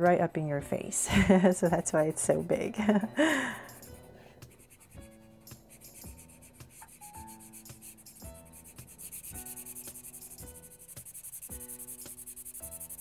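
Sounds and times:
soft background music: 0:00.0 - 0:13.0
marker scratching on paper: 0:04.2 - 0:13.0.

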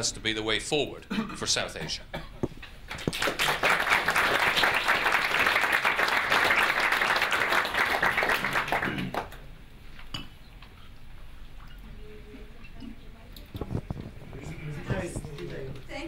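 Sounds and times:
audience applauding: 0:02.9 - 0:09.4.

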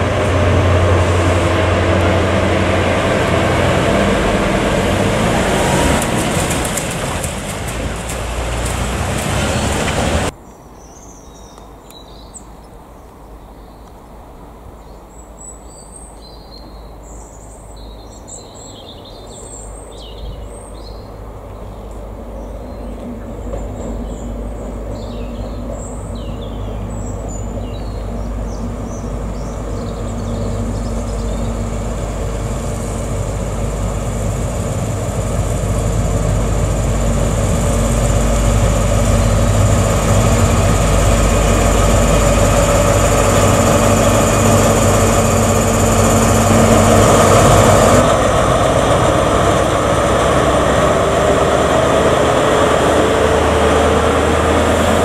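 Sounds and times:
diesel train engine passing: 0:00.0 - 0:10.4, 0:17.0 - 0:55.0
rail noise: 0:00.0 - 0:10.4, 0:16.6 - 0:55.0
birds chirping: 0:14.9 - 0:48.1.

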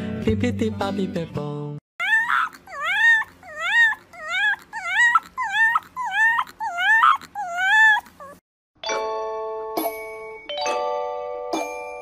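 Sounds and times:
young animal crying: 0:02.0 - 0:08.4.

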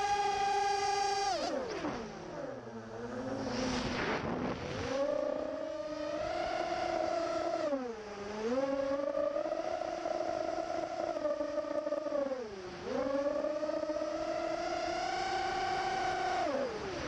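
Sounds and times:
drone motors whining: 0:00.0 - 0:17.0
rush of air: 0:03.2 - 0:05.0.

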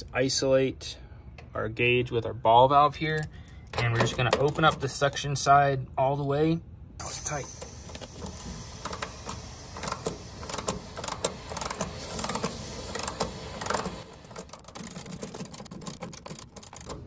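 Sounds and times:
ratchet wrench clicking: 0:07.2 - 0:17.0.

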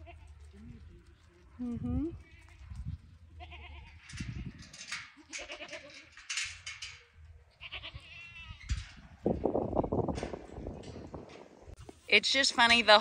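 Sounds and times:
goats bleating: 0:03.4 - 0:04.0, 0:05.2 - 0:06.1, 0:07.6 - 0:08.6.

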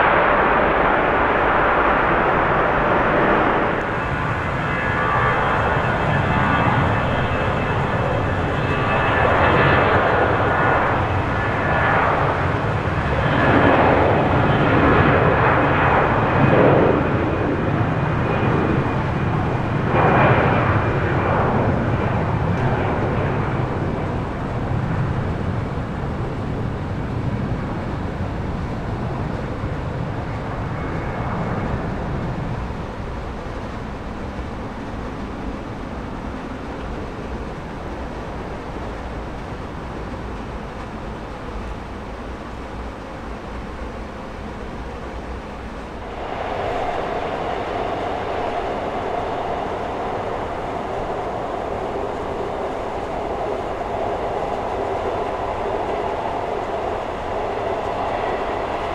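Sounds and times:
high fan whine: 0:00.0 - 0:58.9
jet engines roaring: 0:00.0 - 0:58.9.

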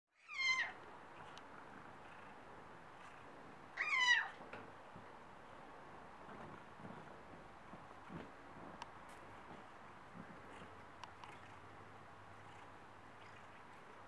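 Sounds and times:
cat meowing: 0:00.2 - 0:00.8, 0:03.8 - 0:04.4.

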